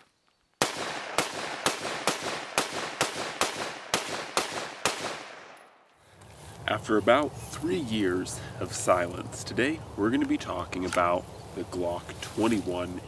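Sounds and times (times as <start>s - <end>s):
semi-automatic gunfire: 0.6s - 5.6s.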